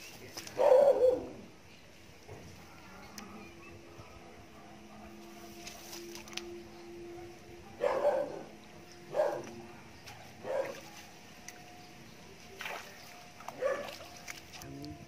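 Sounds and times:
dog barking: 0:00.6 - 0:01.3, 0:04.0 - 0:05.4, 0:07.8 - 0:08.5, 0:09.1 - 0:11.1, 0:13.6 - 0:14.0.

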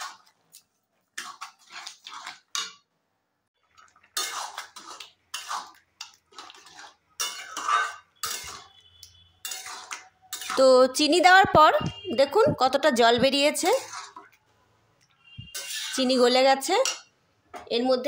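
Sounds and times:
metal spatula scraping a wok: 0:01.1 - 0:02.8, 0:04.2 - 0:11.2, 0:13.3 - 0:14.4, 0:15.3 - 0:16.4.

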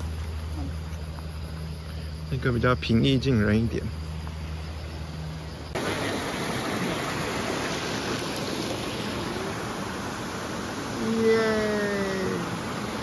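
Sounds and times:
low steady hum: 0:00.0 - 0:13.0
waterfall rushing: 0:05.7 - 0:13.0.

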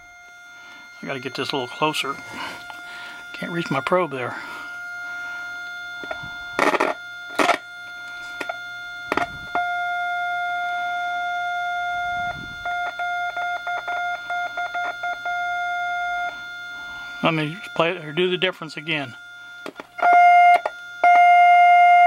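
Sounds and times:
test tone from speaker: 0:00.0 - 0:22.0.

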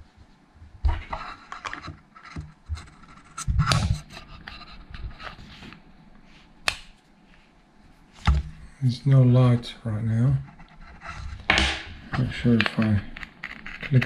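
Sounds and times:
rubber strap rubbing and scraping: 0:10.5 - 0:11.5, 0:12.2 - 0:14.0.

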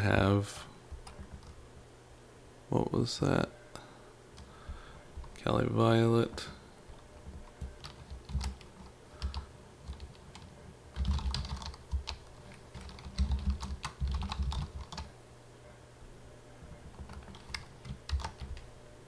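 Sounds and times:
keyboard typing: 0:00.9 - 0:01.6, 0:06.9 - 0:15.1, 0:16.8 - 0:18.7.

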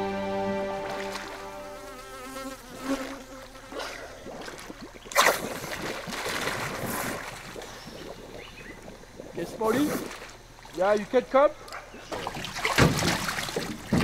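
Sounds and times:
music: 0:00.0 - 0:01.9
water splashing around divers: 0:03.6 - 0:14.0
loud sharp splash: 0:05.1 - 0:07.5, 0:12.4 - 0:14.0.

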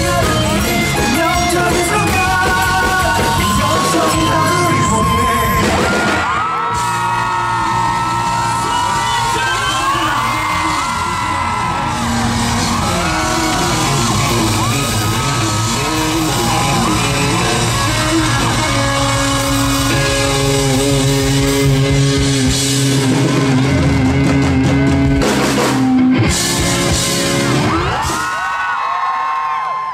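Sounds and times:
drum and cymbal hits: 0:00.0 - 0:28.5
live rock band playing: 0:00.0 - 0:28.7.

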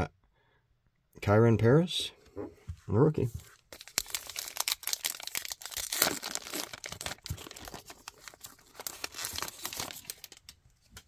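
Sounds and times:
cards crinkling and clicking: 0:03.7 - 0:11.0.

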